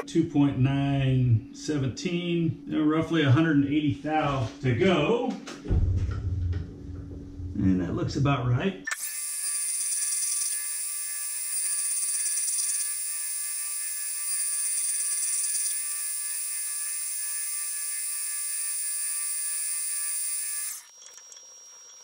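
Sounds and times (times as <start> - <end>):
lathe tool squealing: 11.4 - 13.1.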